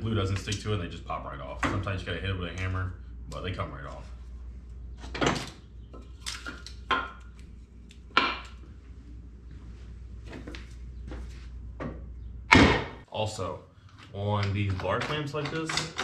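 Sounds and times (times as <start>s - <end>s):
low steady hum: 0.0s - 16.0s
wooden panels knocking together: 8.1s - 8.6s.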